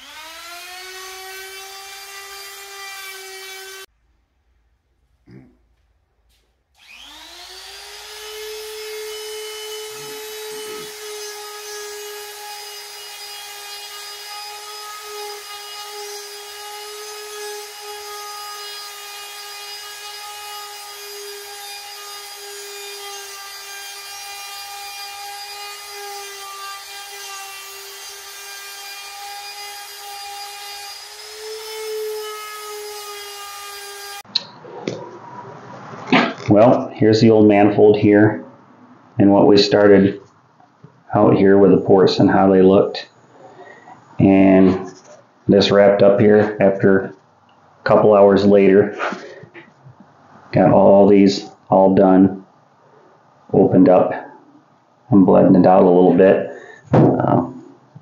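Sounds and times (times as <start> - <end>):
die grinder whining on iron: 0.0 - 3.8, 6.8 - 13.3.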